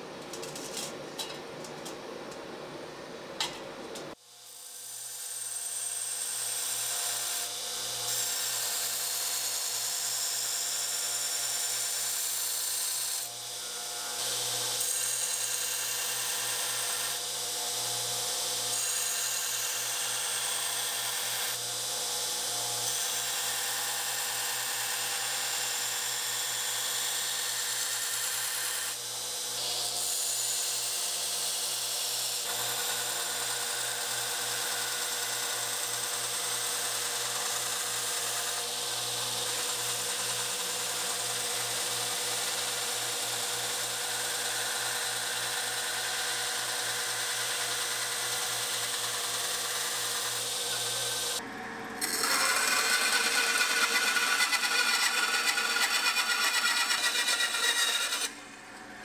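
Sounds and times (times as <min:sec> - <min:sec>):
grinder motor hum: 0:45.0 - 0:59.0
belt grinder grinding steel: 0:52.0 - 0:58.4.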